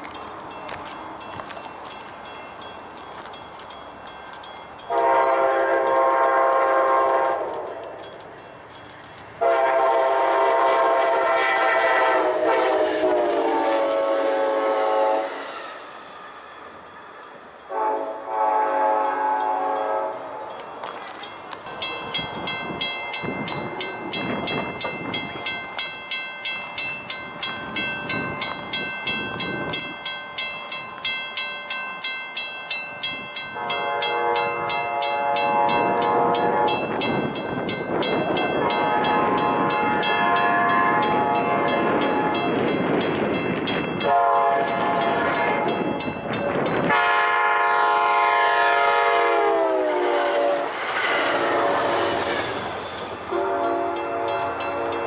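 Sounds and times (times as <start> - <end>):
train air horn blasts: 4.9 - 8.0, 9.4 - 15.7, 17.7 - 20.5, 33.5 - 37.0, 38.6 - 42.6, 44.0 - 45.9, 46.8 - 52.5, 53.3 - 55.0.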